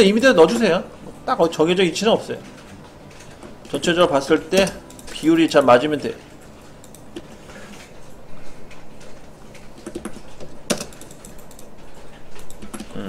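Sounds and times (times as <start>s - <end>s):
computer mouse and keyboard clicks: 2.3s - 6.2s, 6.8s - 13.0s.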